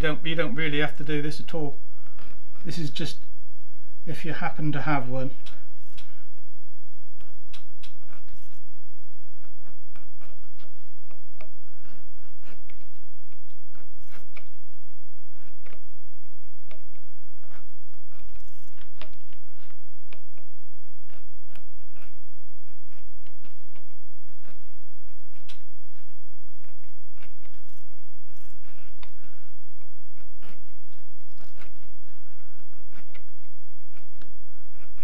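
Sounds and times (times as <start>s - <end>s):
edge beveler scraping leather: 9.4s - 13.0s, 13.7s - 14.5s, 25.3s - 29.4s, 30.2s - 35.0s.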